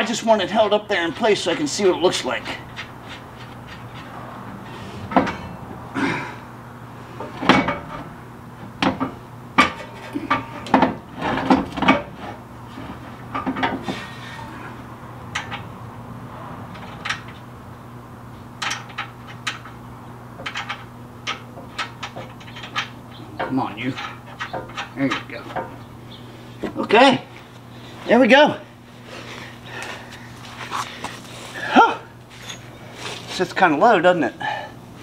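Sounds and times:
metal plate and bolts clanking: 2.5s - 5.7s, 7.2s - 8.2s.

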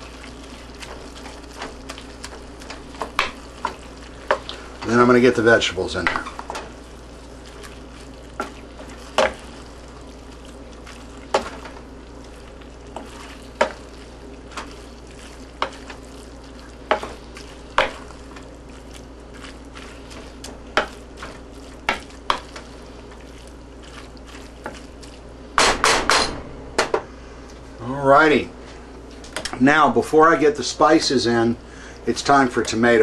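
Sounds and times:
food sizzling in a frying pan: 0.0s - 25.3s
wooden spoon scraping a pan: 7.5s - 25.2s.

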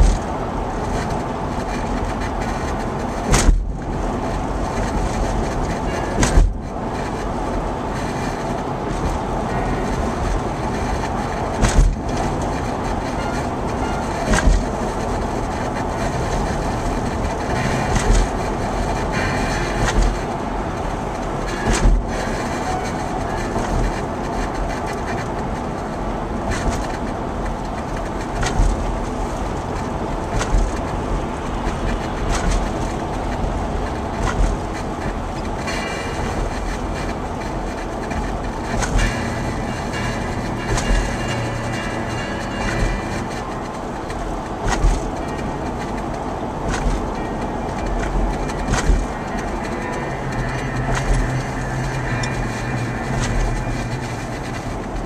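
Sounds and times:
car road noise rumble: 0.0s - 55.0s
tyres thumping over road joints: 3.2s - 3.9s, 4.7s - 6.7s.

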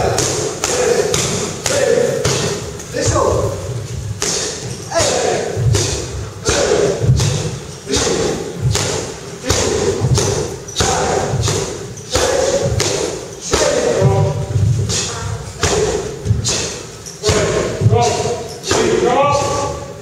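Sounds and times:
punches thudding on punching bags: 4.2s - 19.7s.

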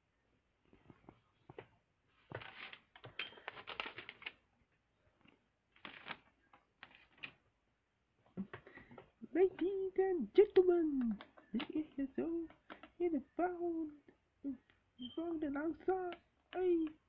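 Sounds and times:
handling rustling and clicks: 2.3s - 4.5s.

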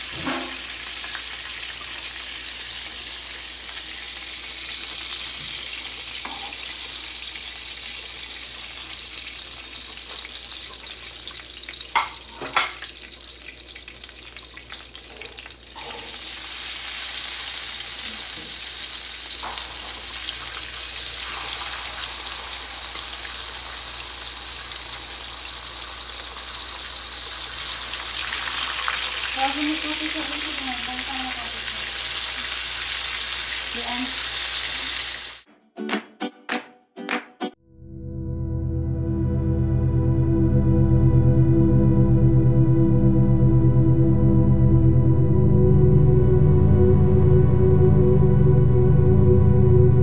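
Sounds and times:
ham frying in oil: 0.0s - 35.5s
oil sizzling in a frying pan: 0.0s - 35.5s.

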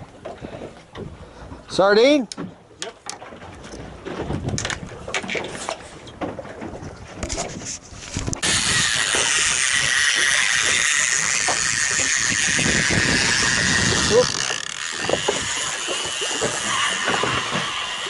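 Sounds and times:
fishing reel clicks and knocks: 8.2s - 18.0s.

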